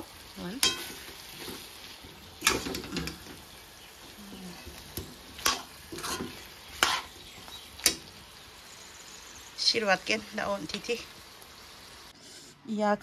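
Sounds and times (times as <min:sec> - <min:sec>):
faint frying sizzle: 0:00.0 - 0:13.0
spoon scraping a wok: 0:00.6 - 0:03.4, 0:04.6 - 0:08.1.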